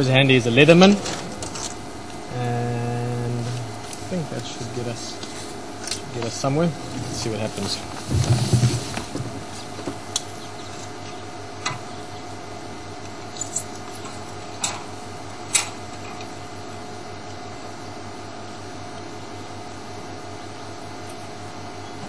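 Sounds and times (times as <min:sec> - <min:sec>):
electrical hum and hiss: 0:00.0 - 0:22.0.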